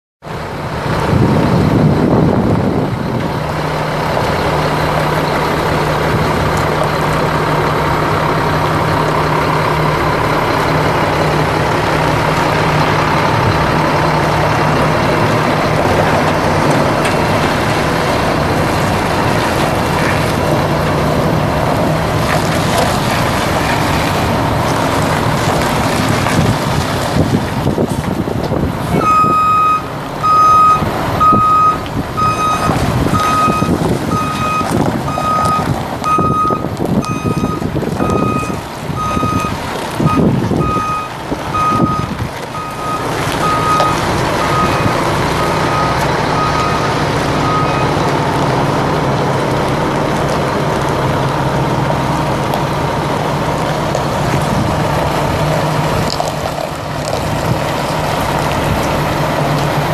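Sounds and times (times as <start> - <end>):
diesel truck engine running: 0.2 - 59.9
reversing alarm beeping: 29.0 - 48.0.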